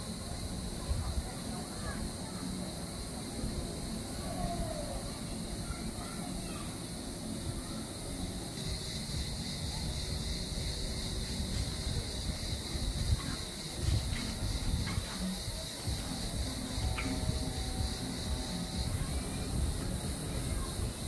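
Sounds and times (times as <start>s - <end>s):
steady high hiss: 0.0s - 21.0s
wind rumbling on microphone: 9.8s - 21.0s.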